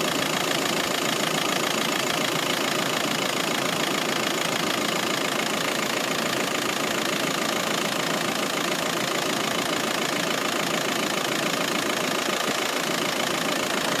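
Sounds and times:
diesel engine idling: 0.0 - 14.0.

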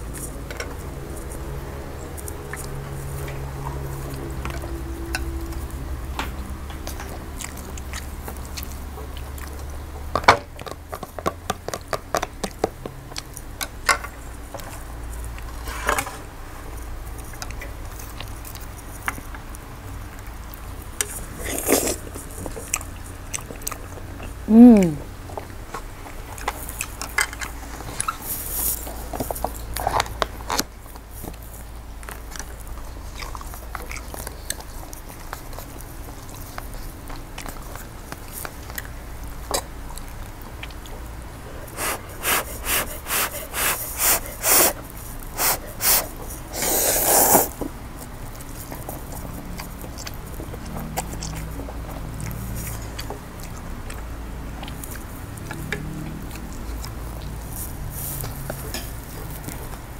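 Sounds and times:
person chewing and slurping: 17.3 - 30.7, 31.3 - 59.9.

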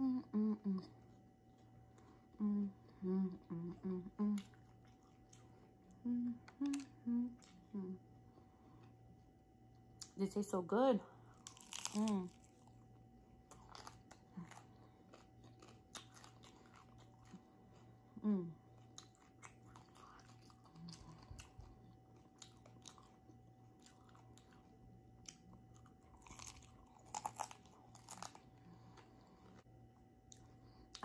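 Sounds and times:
person chewing crunchy food: 4.4 - 5.8, 11.3 - 31.0.

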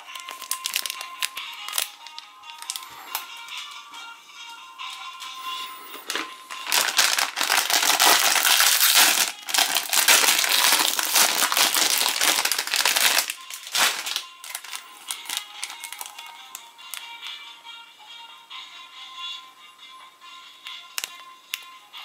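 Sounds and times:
plastic sleeve crackling: 0.0 - 3.3, 5.9 - 17.1
plastic wrapper crinkling: 0.0 - 3.5, 5.9 - 17.1, 21.0 - 21.2.

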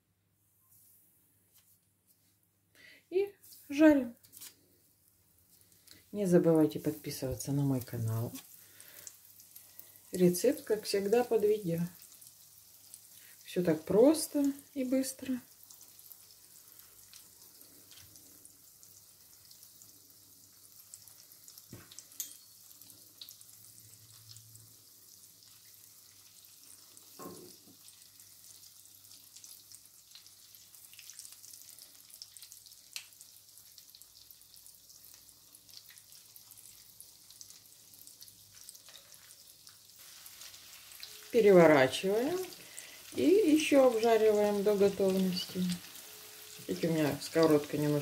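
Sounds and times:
oil sizzling with crackles: 3.4 - 48.0
fork tapping a pan: 21.8 - 22.5.

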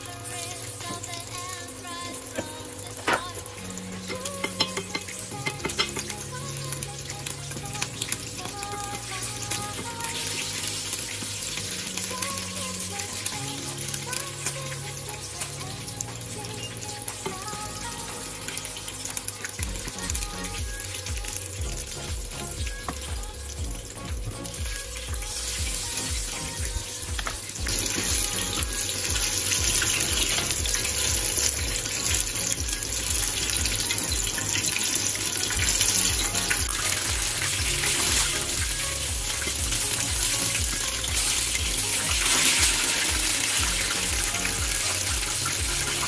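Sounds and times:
background music with beat: 0.0 - 46.0
meat deep-frying in oil: 0.0 - 46.0.

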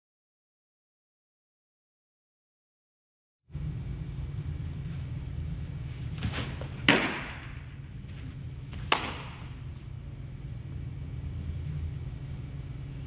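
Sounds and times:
steady low hum: 3.5 - 13.0.

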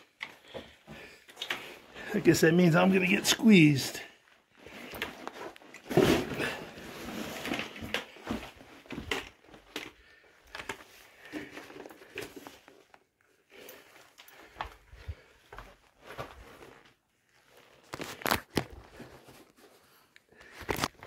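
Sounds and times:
crunching and crinkling: 4.5 - 21.0.

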